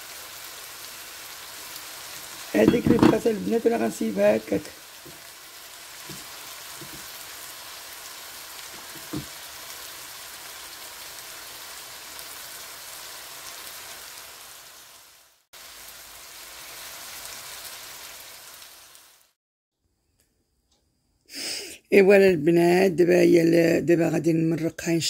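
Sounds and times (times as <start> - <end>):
seafood sizzling in a frying pan: 0.0 - 19.4.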